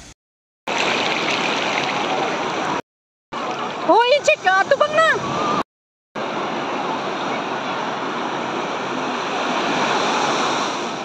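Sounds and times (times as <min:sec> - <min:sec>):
surf washing over shallows: 0:00.7 - 0:02.8, 0:06.2 - 0:11.0.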